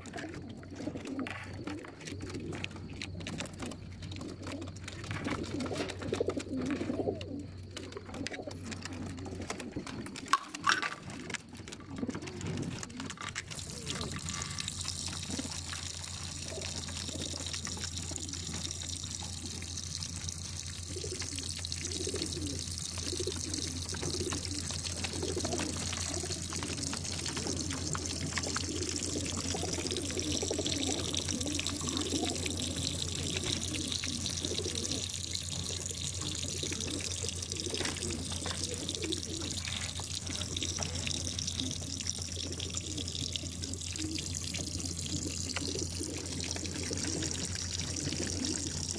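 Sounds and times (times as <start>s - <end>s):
steady low hum: 13.4s - 48.9s
water running and trickling: 13.5s - 48.9s.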